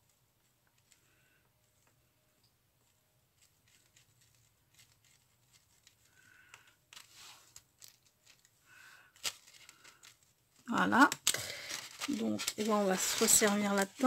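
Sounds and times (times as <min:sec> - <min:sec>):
paper rustle: 0:02.8 - 0:14.0.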